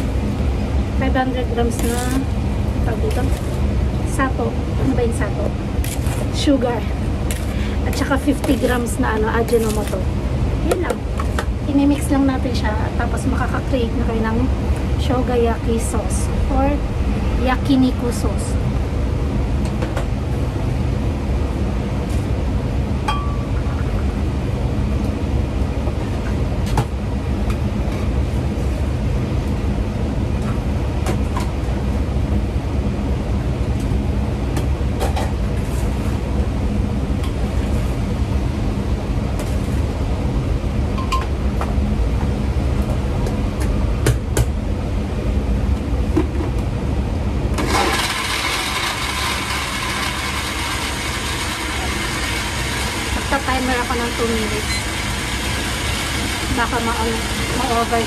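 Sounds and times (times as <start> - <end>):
kitchen hum: 0.0 - 20.4, 47.4 - 58.0
electric blender running: 47.6 - 58.0.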